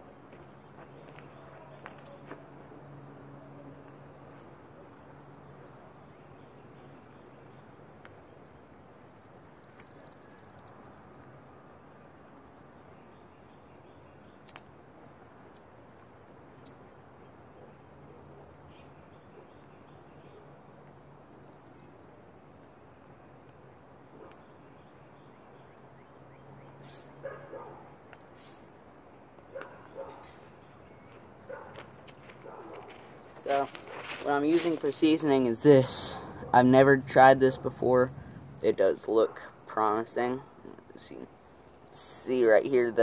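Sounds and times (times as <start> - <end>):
birds chirping faintly: 0.0 - 43.0
steady low hum: 30.2 - 42.0.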